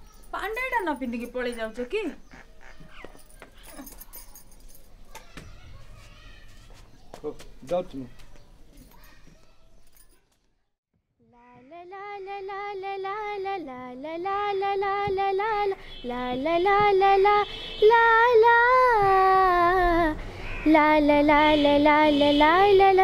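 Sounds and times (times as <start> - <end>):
girls singing: 11.5 - 23.0.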